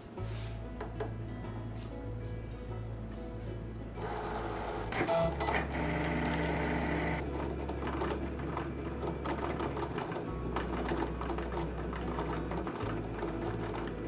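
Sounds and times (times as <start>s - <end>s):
cutting machine motor hum: 4.0s - 7.2s.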